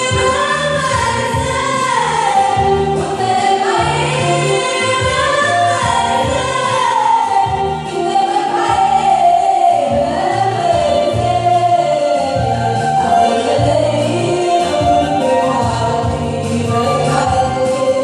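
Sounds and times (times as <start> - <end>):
backing choir singing: 0.0 - 18.0
electronic keyboard bass notes: 0.0 - 18.0
woman singing into a microphone: 0.0 - 18.0.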